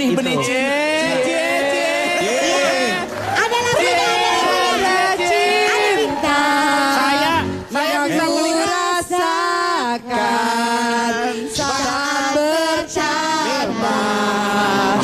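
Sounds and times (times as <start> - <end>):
woman singing into a microphone: 4.6 - 15.0.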